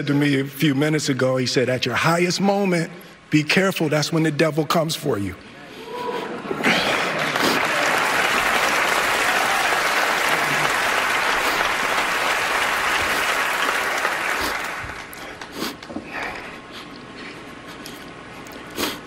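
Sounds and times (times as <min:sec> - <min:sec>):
audience applauding: 0:06.6 - 0:15.9.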